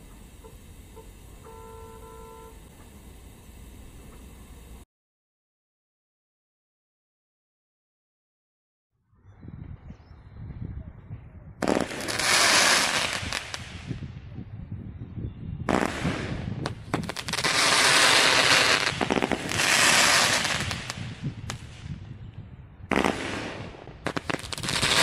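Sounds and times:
firework hissing: 0.0s - 4.8s, 11.6s - 14.0s, 15.7s - 22.0s, 22.9s - 25.0s
firework pops: 15.7s - 22.0s, 22.9s - 25.0s.

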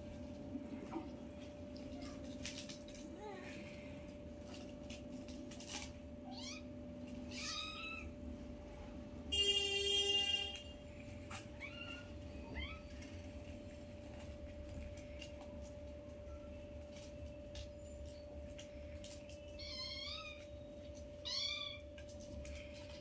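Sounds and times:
kittens mewing: 6.2s - 8.2s.

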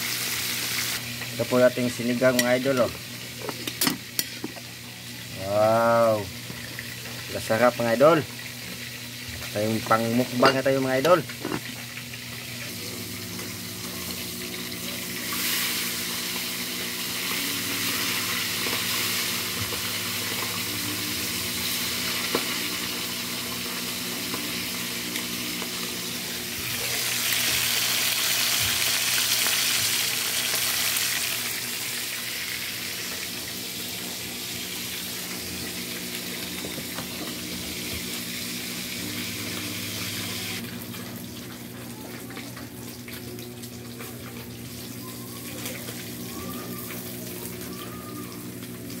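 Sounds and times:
fish sizzling in hot oil: 0.0s - 41.7s.

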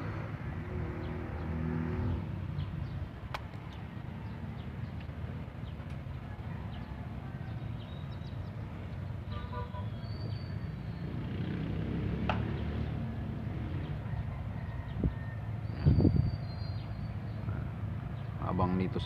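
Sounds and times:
traffic rumble: 0.0s - 19.0s.

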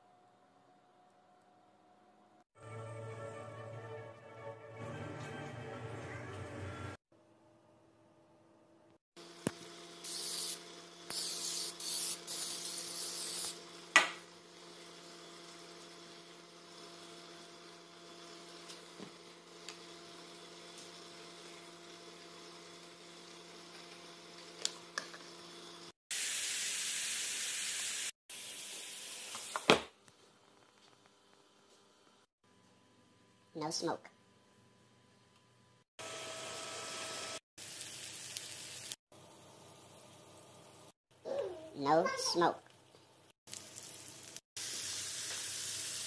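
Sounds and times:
short bursts of hiss: 10.1s - 13.6s
steaks sizzling on a grill: 26.2s - 28.1s, 37.6s - 39.0s, 43.5s - 46.0s.

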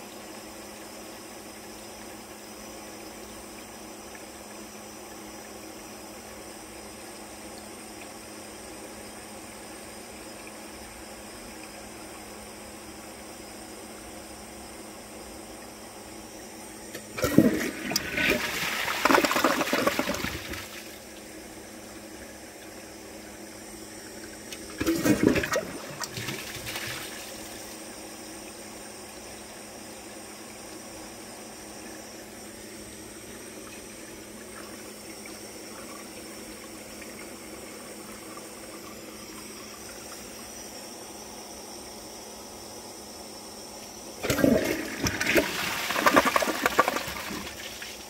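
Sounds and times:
low water hiss: 0.0s - 48.0s
toilet flushing: 16.9s - 21.2s, 24.1s - 27.8s, 44.2s - 48.0s.

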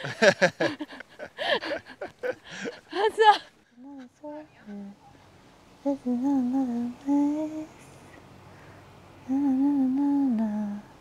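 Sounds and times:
person humming: 3.8s - 5.0s, 5.9s - 7.8s, 9.2s - 10.9s.

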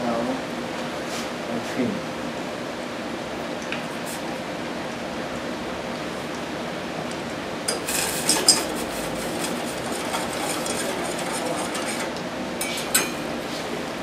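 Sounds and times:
utensil clinking in saucepan: 7.7s - 13.3s.

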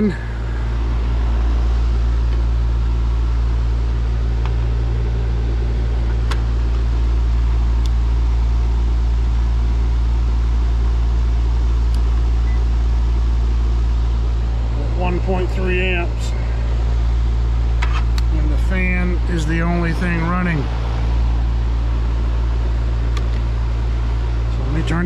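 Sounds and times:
fan motor hum and air rush: 0.0s - 25.0s.

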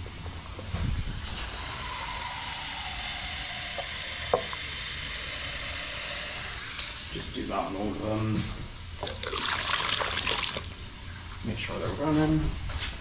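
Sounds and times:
tap water running into plastic: 9.0s - 10.8s.

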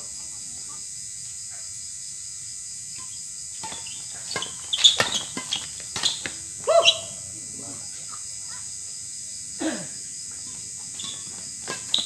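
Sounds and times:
high-pitched background hiss: 0.0s - 12.0s
racket striking shuttlecock: 3.6s - 7.0s, 10.9s - 12.0s
sneakers squeaking on court: 3.6s - 7.1s, 10.9s - 12.0s.

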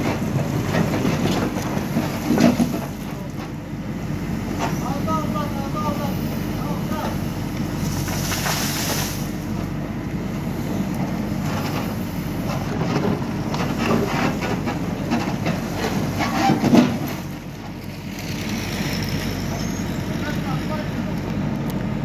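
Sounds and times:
diesel engine running: 0.0s - 22.0s
rocks scraping steel bucket: 11.6s - 17.3s.

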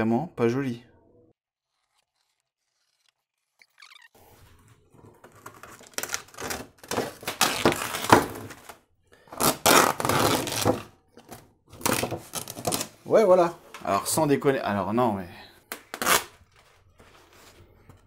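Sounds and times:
canvas tearing: 5.3s - 8.8s, 9.4s - 10.9s, 11.8s - 13.0s, 15.9s - 16.5s.

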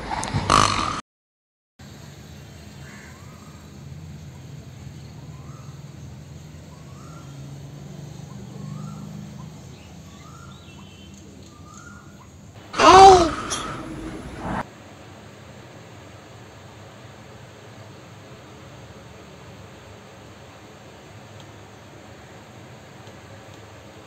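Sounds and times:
low background hum: 1.8s - 24.0s
bird chirping: 4.8s - 12.4s
sudden loud sound: 12.8s - 14.6s.

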